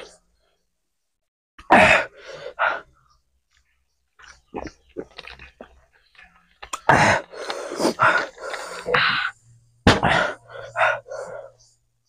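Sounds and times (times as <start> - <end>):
eating noodles mouth sounds: 4.2 - 8.9.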